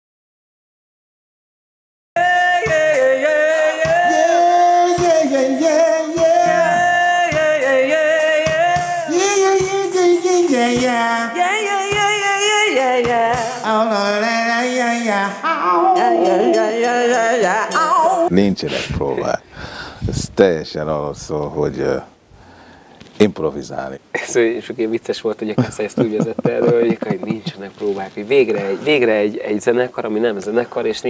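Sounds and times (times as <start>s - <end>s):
person singing long notes: 2.2s - 18.3s
keyboards: 2.8s - 11.0s
steady drum hits: 6.3s - 7.6s.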